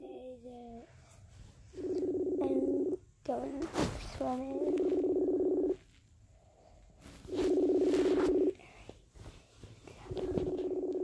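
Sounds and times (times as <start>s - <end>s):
outgoing call ringing tone: 1.8s - 3.0s, 4.6s - 5.8s, 7.3s - 8.6s, 10.4s - 11.0s.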